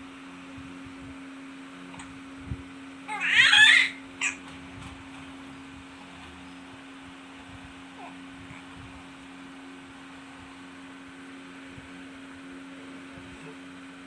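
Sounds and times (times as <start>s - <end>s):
infant squealing: 3.1s - 4.4s.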